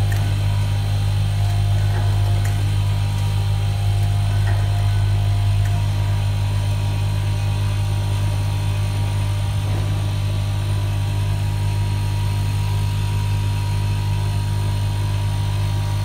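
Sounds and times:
machine humming: 0.0s - 16.0s.

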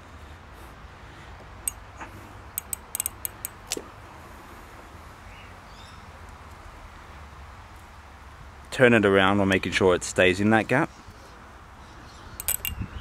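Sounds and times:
small metal clicks and taps: 2.6s - 3.8s, 12.4s - 12.8s.

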